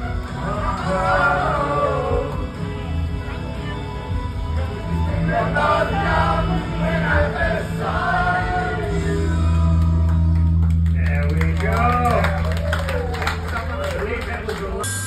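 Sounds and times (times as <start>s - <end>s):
voices singing into microphones: 0.0s - 3.0s, 4.8s - 10.1s
deep steady bass: 0.0s - 15.0s
loud backing music: 0.0s - 15.0s.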